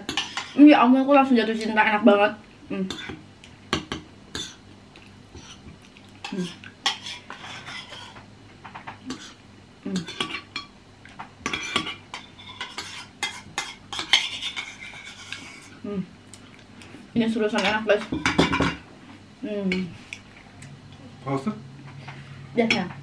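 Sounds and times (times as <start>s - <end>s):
spoons scraping against bowls: 0.0s - 0.6s, 6.2s - 8.2s, 11.4s - 15.8s.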